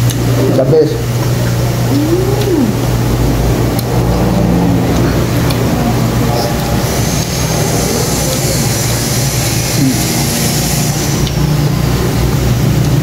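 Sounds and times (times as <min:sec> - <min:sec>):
low mechanical hum: 0:00.0 - 0:13.0
hiss: 0:06.8 - 0:11.2.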